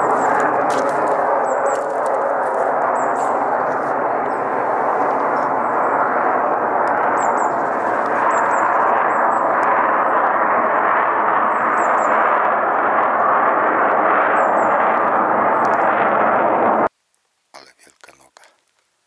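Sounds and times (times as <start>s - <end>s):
aircraft roar overhead: 0.0s - 16.9s.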